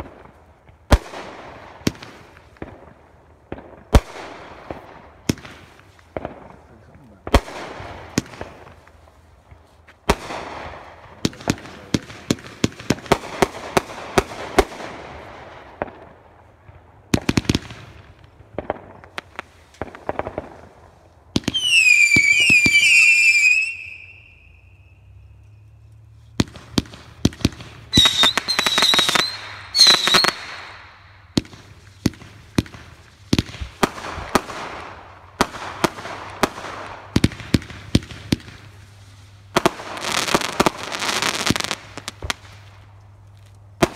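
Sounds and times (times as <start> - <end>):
fireworks bangs: 0.0 - 25.4, 26.3 - 42.9
fireworks crackling: 0.0 - 43.9
whistling firework: 21.4 - 42.8.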